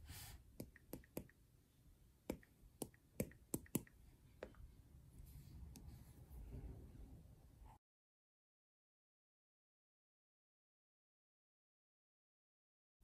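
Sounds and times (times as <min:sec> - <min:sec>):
stylus tapping on glass screen: 0:02.3 - 0:04.6.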